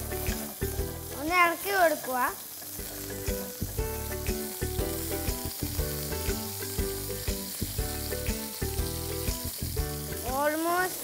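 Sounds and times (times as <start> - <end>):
chicken sizzling in frying pan: 0.0 - 11.0
background music quick melody: 2.8 - 10.4.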